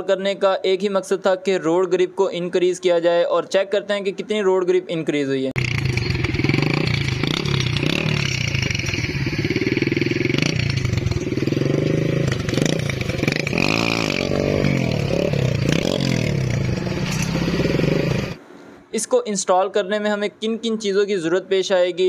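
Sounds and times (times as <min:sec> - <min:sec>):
motorcycle engine running and revving: 0:05.6 - 0:18.4.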